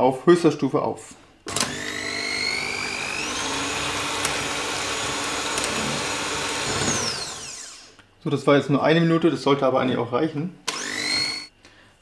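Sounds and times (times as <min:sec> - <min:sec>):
electric hand mixer whine: 0:01.5 - 0:08.0, 0:10.7 - 0:11.5.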